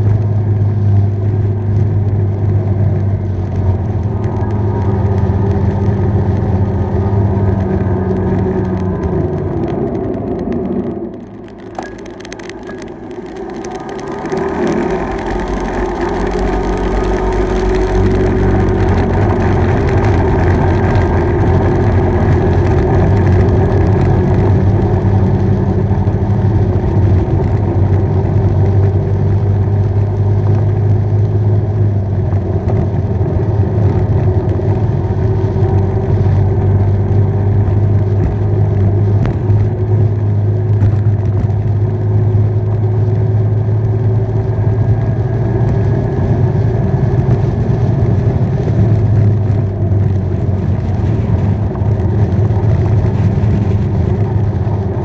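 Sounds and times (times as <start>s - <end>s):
bike riding drone: 0.0s - 55.0s.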